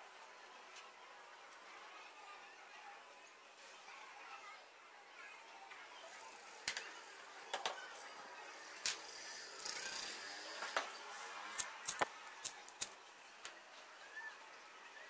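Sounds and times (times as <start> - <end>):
plastic objects clicking on a table: 6.6 - 6.9, 7.5 - 7.8.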